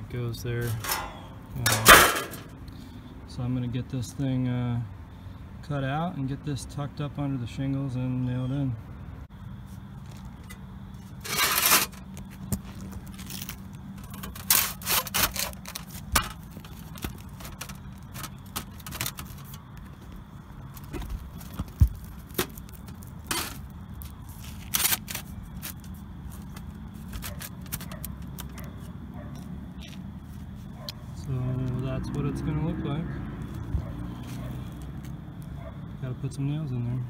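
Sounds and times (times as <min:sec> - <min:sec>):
metal scraping and rattling on shingles: 0:00.6 - 0:02.6, 0:10.4 - 0:28.9.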